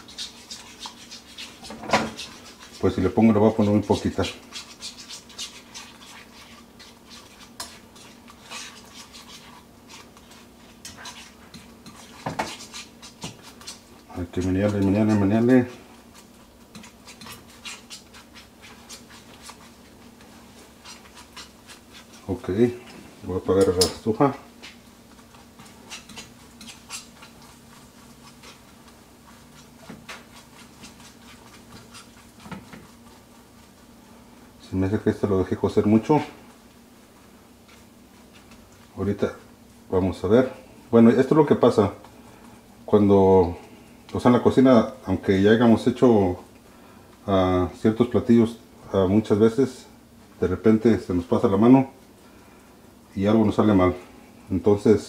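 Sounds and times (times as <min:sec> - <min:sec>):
utensil scraping a frying pan: 0:00.0 - 0:34.1
low steady hum: 0:00.0 - 0:55.0.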